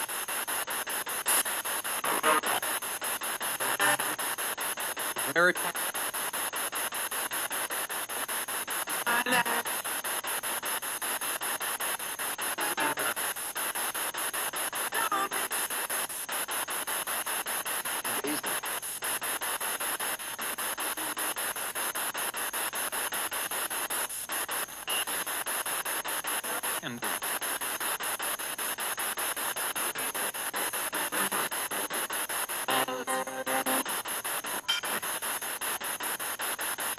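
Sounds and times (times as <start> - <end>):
radio static sweeping: 0.0 - 36.9
broadcast voice fragments: 2.0 - 2.8, 5.2 - 5.8, 9.0 - 9.7, 12.6 - 13.2, 18.0 - 18.7, 26.5 - 27.2.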